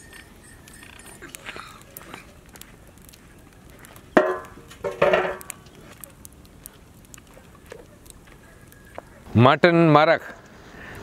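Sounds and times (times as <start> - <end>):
wood fire crackling: 0.0 - 11.0
metal pot clanking on stand: 4.2 - 5.5.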